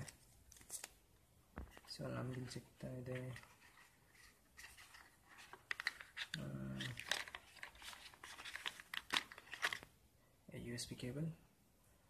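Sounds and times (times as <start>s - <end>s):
cable rustling in cardboard tray: 3.0s - 9.9s.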